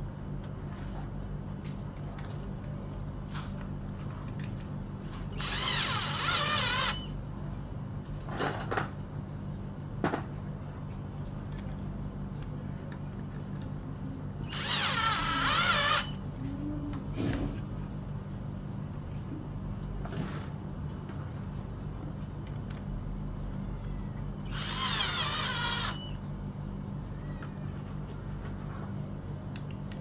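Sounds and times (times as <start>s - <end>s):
cordless drill whining: 5.3s - 7.1s, 14.4s - 16.2s, 24.5s - 26.2s.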